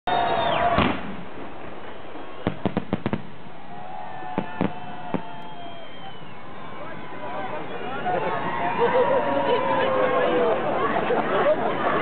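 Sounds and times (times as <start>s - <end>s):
firework bangs: 0.2s - 6.3s
fireworks crackling bursts: 0.2s - 6.3s.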